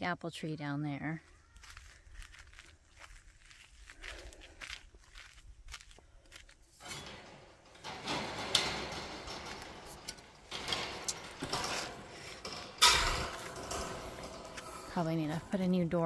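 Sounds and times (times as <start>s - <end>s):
gate clanking: 6.8s - 16.0s
wire mesh gate rattling and scraping: 6.8s - 16.0s.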